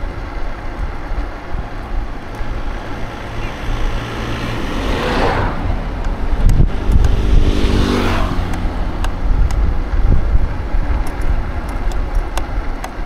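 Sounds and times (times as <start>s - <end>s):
vehicle engine humming past: 0.0s - 13.0s
wind rumble on microphone: 0.0s - 13.0s
vehicle rushing past: 1.6s - 11.0s.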